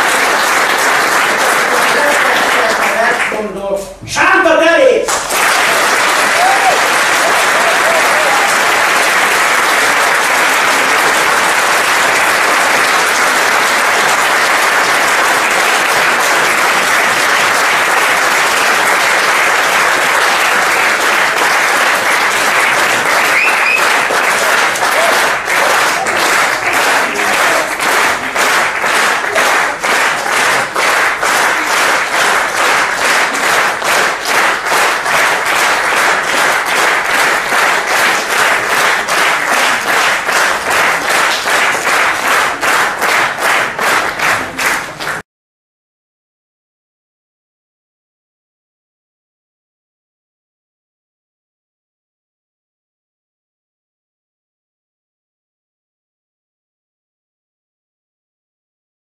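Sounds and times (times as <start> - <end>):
audience applauding: 0.0 - 3.5, 5.1 - 45.2.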